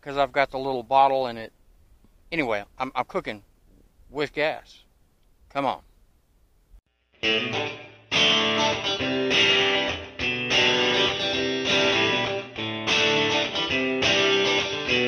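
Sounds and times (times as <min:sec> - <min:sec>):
strummed guitar chords: 0:07.1 - 0:15.0.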